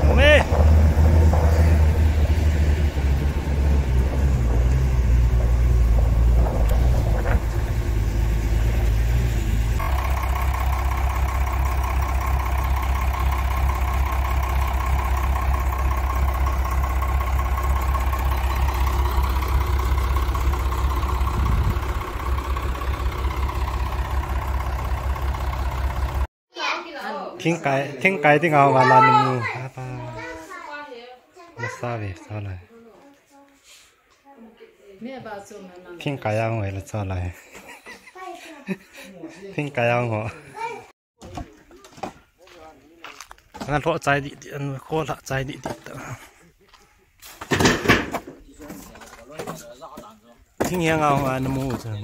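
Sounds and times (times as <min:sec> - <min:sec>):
truck engine idling: 0:00.0 - 0:26.3.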